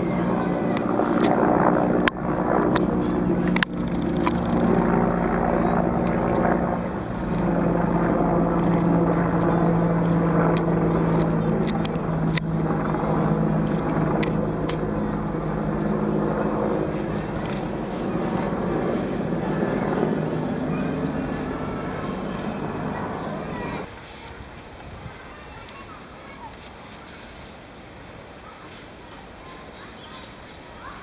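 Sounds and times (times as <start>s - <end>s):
engine drone: 0.0s - 23.9s.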